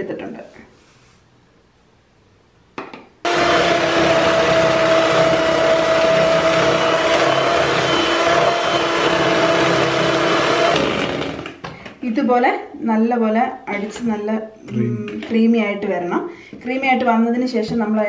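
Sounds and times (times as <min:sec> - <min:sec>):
electric hand mixer whining: 0:03.3 - 0:11.6.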